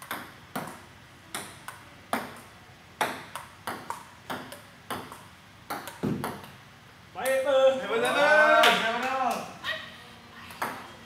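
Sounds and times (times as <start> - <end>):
table tennis ball clicking: 0.0 - 6.6.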